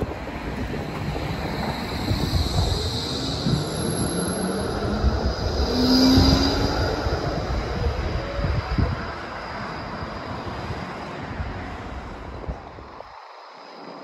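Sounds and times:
tram wheel whine: 0.0s - 14.0s
tram wheels rumbling on rails: 0.0s - 14.0s.

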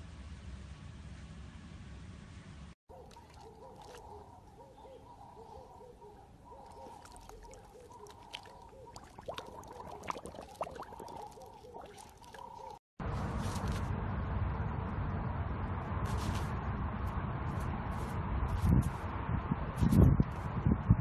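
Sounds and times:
dog lapping water: 2.9s - 4.3s, 6.6s - 12.8s
water dripping: 6.6s - 12.8s.

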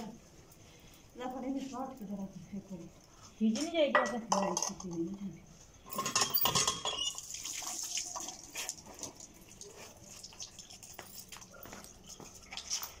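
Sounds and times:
metal pots and utensils clattering: 3.9s - 5.0s, 5.9s - 7.2s.

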